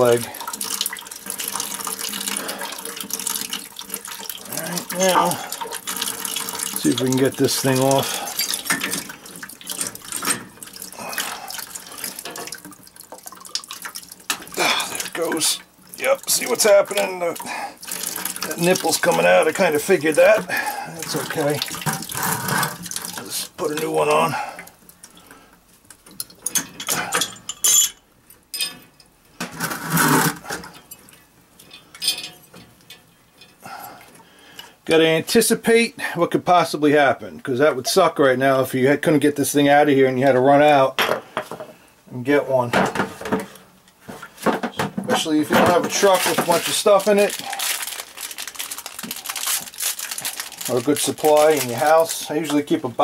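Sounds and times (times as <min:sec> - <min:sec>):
water stream into plastic bucket: 0:00.0 - 0:27.3, 0:29.4 - 0:35.6, 0:42.2 - 0:53.0
metal valve clinks and scrapes: 0:26.2 - 0:29.0, 0:31.6 - 0:33.6.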